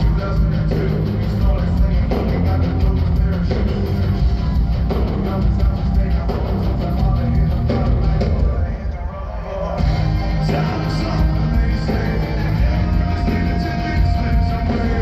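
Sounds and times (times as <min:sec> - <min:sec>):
live hard rock band: 0:00.0 - 0:15.0.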